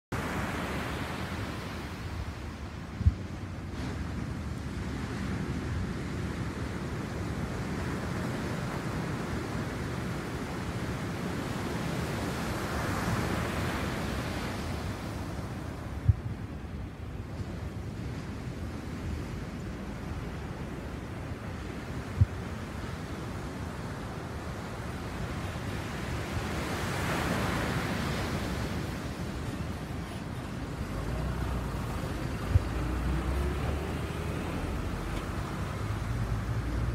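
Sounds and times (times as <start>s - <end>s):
ocean waves breaking: 0.1s - 36.9s.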